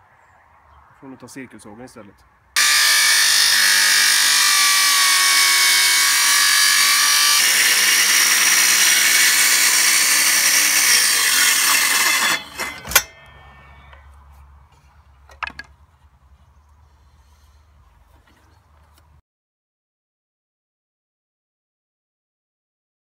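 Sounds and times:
circular saw cutting wood: 2.6 - 13.5.

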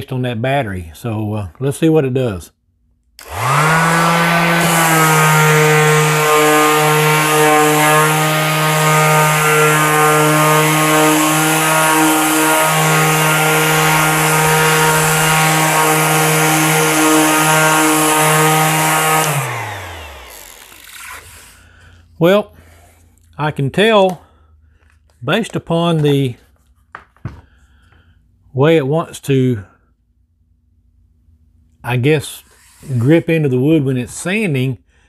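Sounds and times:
orbital sander running: 3.2 - 21.6
sanding disc hissing on wood: 3.2 - 21.6.

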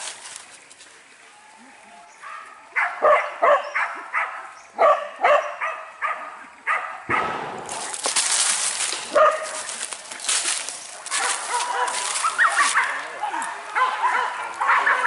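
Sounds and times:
dog yelping barks: 2.2 - 7.3, 9.1 - 9.7, 11.1 - 15.0
loud rustling hiss: 7.2 - 13.8.

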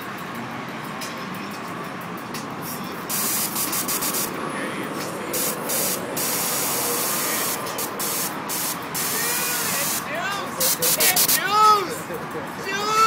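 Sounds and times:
loud hissing gas blasts: 3.1 - 4.4, 5.2 - 11.4.

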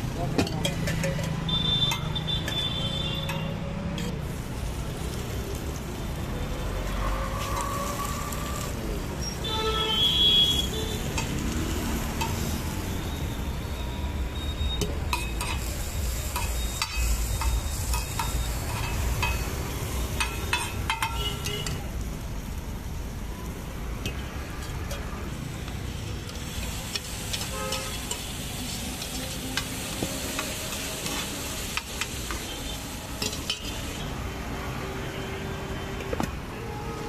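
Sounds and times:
low rumble of street traffic: 0.0 - 37.0
metal utensils tapping and scraping: 0.2 - 2.6, 11.1 - 11.5, 12.1 - 12.5, 14.8 - 21.9, 24.0 - 25.2, 26.2 - 28.4, 29.0 - 32.6, 33.2 - 34.0
light sizzle: 0.8 - 35.1.

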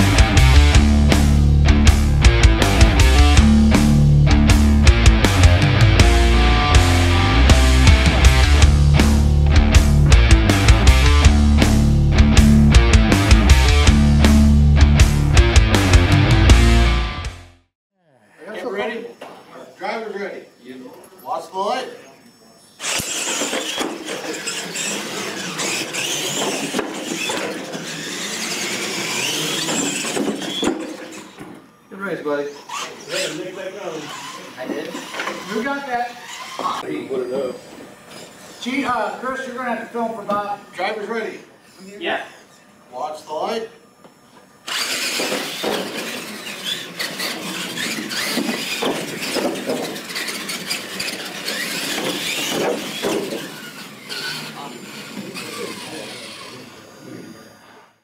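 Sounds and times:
tyres and drivetrain squealing: 22.1 - 39.6, 44.7 - 58.0
toy truck electric motors whining: 22.2 - 39.7, 44.2 - 58.0.

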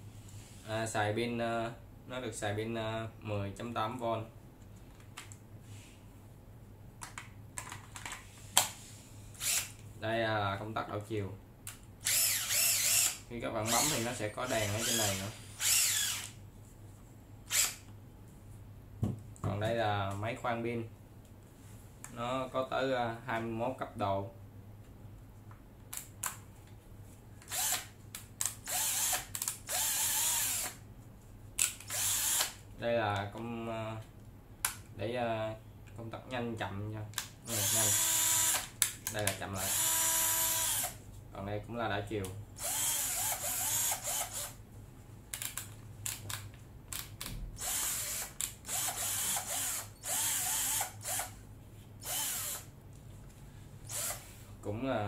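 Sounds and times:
cordless drill spinning up: 9.4 - 9.8, 12.0 - 16.4, 17.5 - 17.8, 27.5 - 27.9, 28.7 - 30.8, 31.9 - 32.6, 37.6 - 38.7, 39.7 - 41.0, 42.6 - 44.6, 47.6 - 51.4, 52.0 - 52.7, 53.9 - 54.2.

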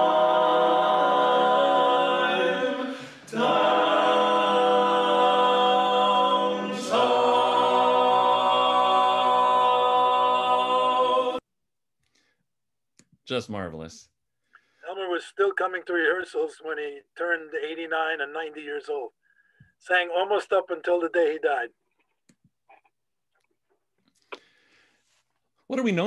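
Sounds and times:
men singing a cappella harmony: 0.0 - 11.4.

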